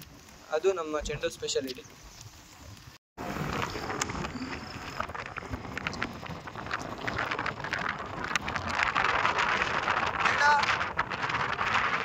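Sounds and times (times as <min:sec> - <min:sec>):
wind buffeting microphone: 0:00.7 - 0:12.0
road noise: 0:03.2 - 0:10.4.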